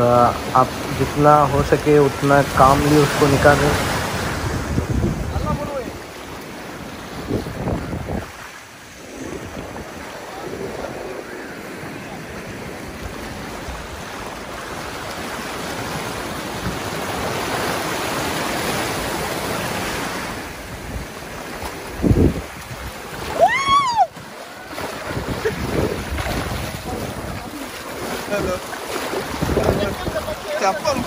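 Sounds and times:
surf washing over rocks: 0:00.0 - 0:31.0
wind buffeting microphone: 0:02.5 - 0:31.0
rising and falling cry: 0:23.3 - 0:24.2.

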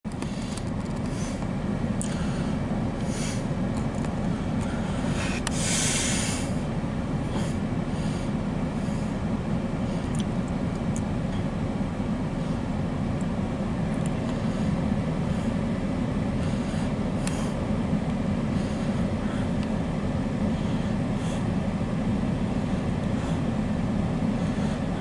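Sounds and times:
diesel locomotive rumbling: 0:00.0 - 0:25.0
short hissing: 0:04.8 - 0:06.6.

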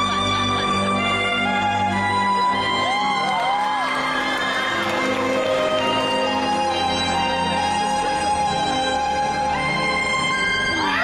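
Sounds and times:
music playing: 0:00.0 - 0:11.0
high whoops: 0:01.6 - 0:05.2
arena audience cheering: 0:01.6 - 0:06.3.

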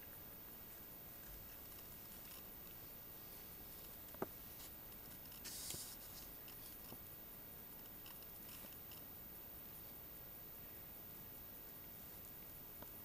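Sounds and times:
paper rustle: 0:03.8 - 0:07.0.

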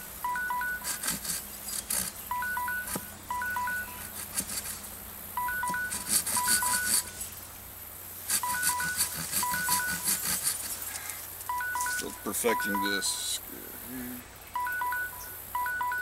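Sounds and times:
digital timer alarm beeping: 0:00.2 - 0:01.0, 0:02.3 - 0:04.1, 0:05.4 - 0:07.1, 0:08.4 - 0:10.2, 0:11.5 - 0:13.4, 0:14.6 - 0:16.0
machete shaving wooden stick: 0:00.8 - 0:02.3, 0:03.8 - 0:04.9, 0:05.7 - 0:07.3, 0:08.2 - 0:11.2.

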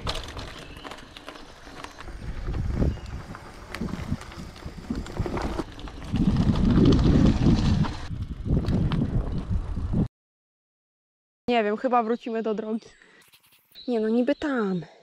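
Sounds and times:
bike rattling over bumps: 0:00.0 - 0:10.1
bike tyres rolling on dirt: 0:00.0 - 0:10.1
wind on microphone: 0:02.0 - 0:10.1.

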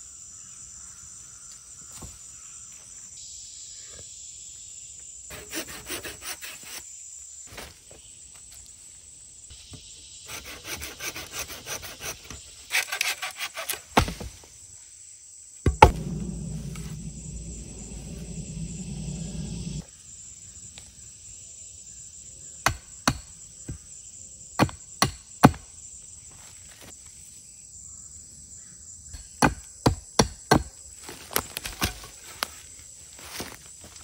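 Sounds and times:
hatchet chopping wood: 0:15.7 - 0:16.2, 0:22.6 - 0:23.3, 0:24.6 - 0:25.6, 0:29.2 - 0:30.8.

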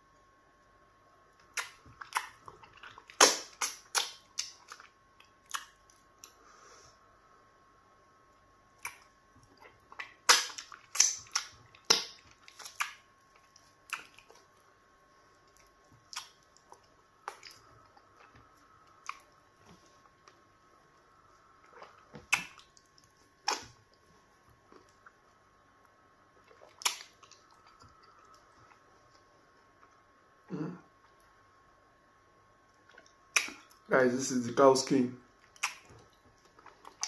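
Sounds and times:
faint hum: 0:00.0 - 0:37.0
wet lip smacks while eating: 0:01.4 - 0:06.4, 0:08.8 - 0:14.4, 0:15.5 - 0:18.4, 0:19.0 - 0:19.3, 0:21.6 - 0:23.8, 0:26.4 - 0:28.8, 0:32.8 - 0:33.8, 0:35.4 - 0:37.0.

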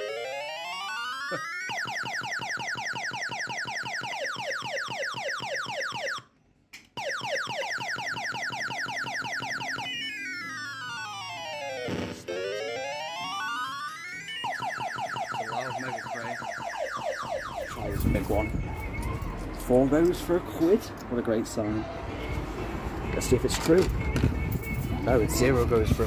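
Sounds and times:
siren-like electronic sweeping tone: 0:00.0 - 0:06.2, 0:07.0 - 0:19.9
quick falling electronic chirps: 0:07.0 - 0:19.2.

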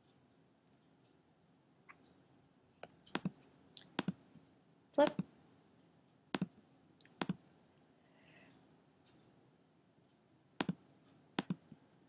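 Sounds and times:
computer mouse clicks: 0:11.4 - 0:11.7.

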